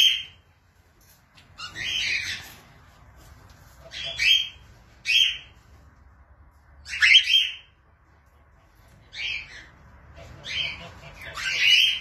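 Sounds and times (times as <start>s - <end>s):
cockatiels calling: 0.0s - 0.4s, 1.4s - 2.7s, 3.7s - 5.6s, 6.8s - 7.8s, 8.6s - 12.0s.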